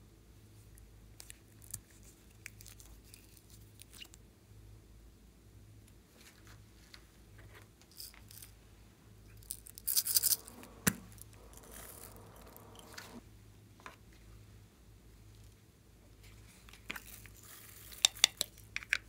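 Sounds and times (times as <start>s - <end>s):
soft rustle: 6.0s - 13.2s, 15.3s - 18.1s.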